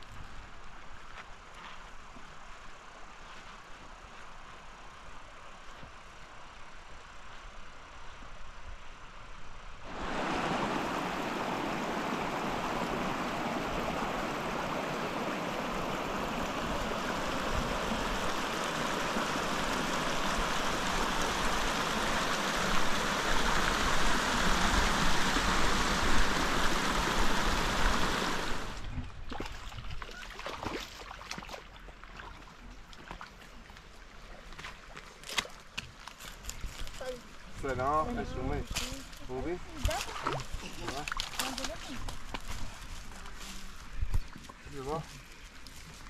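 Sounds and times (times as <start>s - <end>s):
footsteps on a dirt path: 0.0s - 2.4s, 32.9s - 37.7s, 40.9s - 46.0s
water running in a channel: 9.8s - 46.0s.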